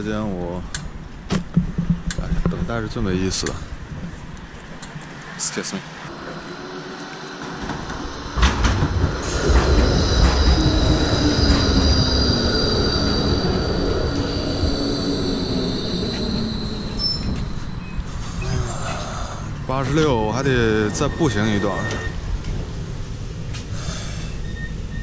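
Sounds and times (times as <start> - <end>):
tram wheels rumbling on rails: 0.0 - 25.0
knock: 1.3 - 2.6
high wheel squeal: 6.1 - 22.5, 23.8 - 25.0.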